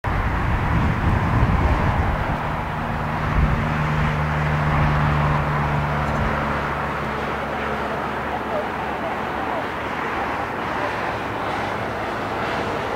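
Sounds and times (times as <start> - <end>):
jet engine rush: 0.0 - 12.9.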